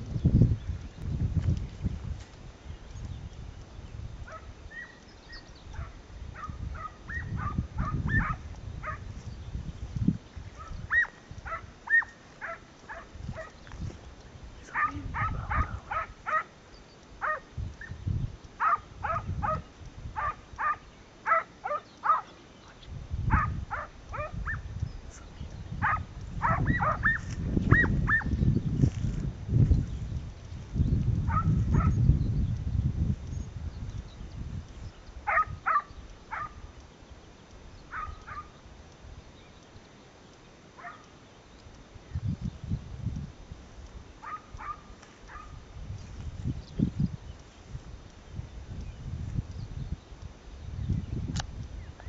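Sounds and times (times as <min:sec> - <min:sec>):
hound barking: 0:04.3 - 0:05.0, 0:05.8 - 0:09.1, 0:10.6 - 0:13.6, 0:14.7 - 0:16.6, 0:17.2 - 0:17.9, 0:18.6 - 0:22.4, 0:23.3 - 0:24.7, 0:25.8 - 0:28.3, 0:31.3 - 0:32.0, 0:35.3 - 0:36.7, 0:37.9 - 0:38.6, 0:40.8 - 0:41.1, 0:44.2 - 0:45.6.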